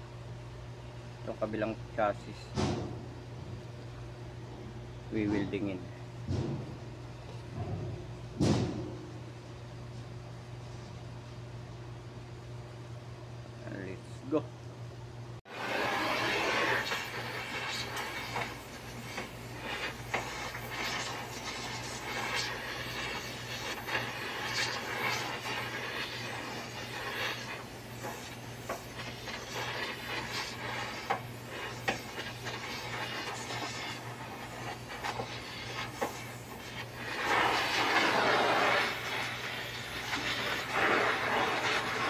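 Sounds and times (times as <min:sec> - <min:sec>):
welding torch flame hissing: 0:15.5 - 0:42.0
crackles and pops: 0:15.6 - 0:42.0.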